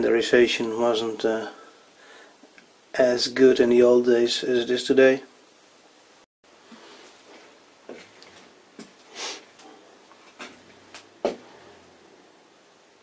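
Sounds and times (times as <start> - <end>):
short scrape or rustle: 9.1 - 9.5.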